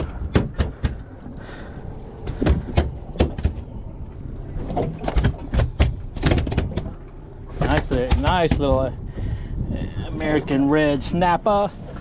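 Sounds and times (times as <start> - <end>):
knocks and thumps on boat deck: 0.0 - 1.4, 2.2 - 3.9, 4.5 - 9.0
low steady rumble: 0.0 - 12.0.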